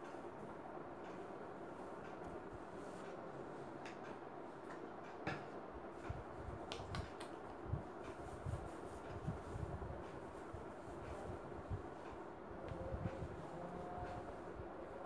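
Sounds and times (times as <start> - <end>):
fingers rustling through hair: 6.0 - 14.8.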